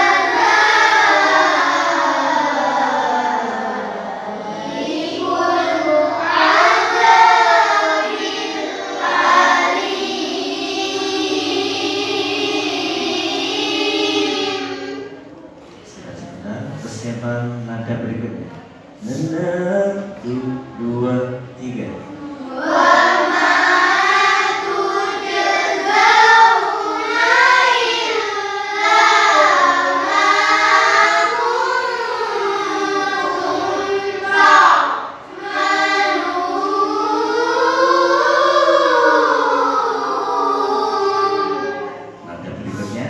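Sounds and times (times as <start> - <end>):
children singing in unison: 0.0 - 17.2, 19.0 - 43.0.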